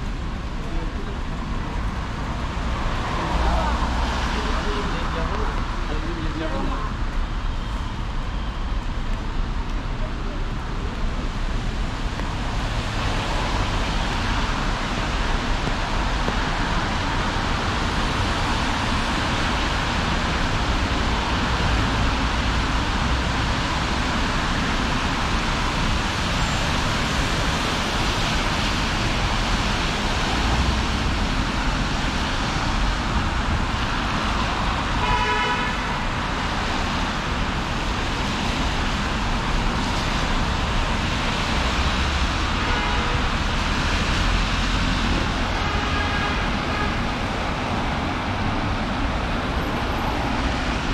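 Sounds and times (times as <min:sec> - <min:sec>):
road traffic noise: 0:00.0 - 0:50.9
vehicle horn honking: 0:35.0 - 0:36.0.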